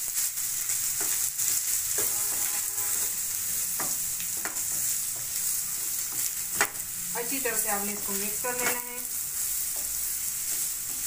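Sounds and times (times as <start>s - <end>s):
chicken sizzling in oil: 0.0s - 11.0s
spatula scraping pan: 1.0s - 4.9s.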